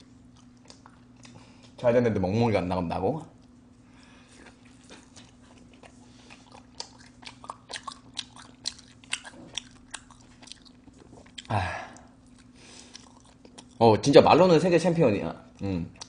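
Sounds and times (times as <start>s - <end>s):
faint steady hum: 0.0s - 16.0s
wet chewing clicks and smacks: 0.2s - 1.8s, 4.4s - 11.5s, 12.2s - 13.8s, 15.5s - 16.0s.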